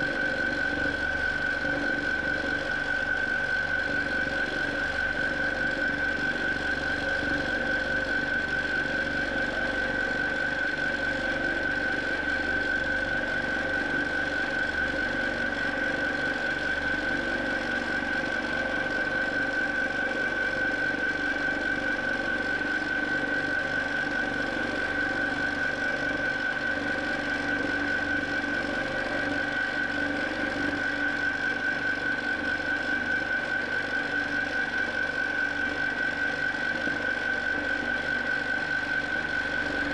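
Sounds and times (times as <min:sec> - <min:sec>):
high-pitched whine: 0:00.0 - 0:39.9.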